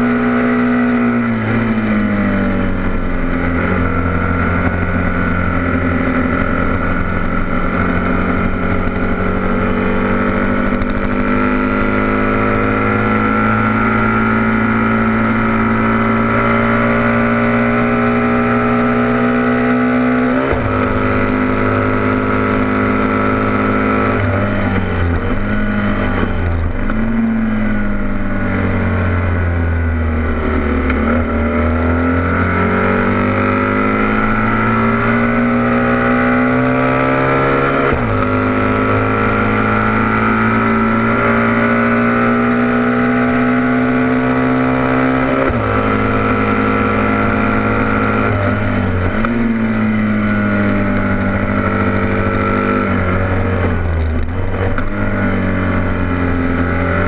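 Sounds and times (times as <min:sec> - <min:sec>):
motorcycle engine at high revs: 0:00.0 - 0:57.0.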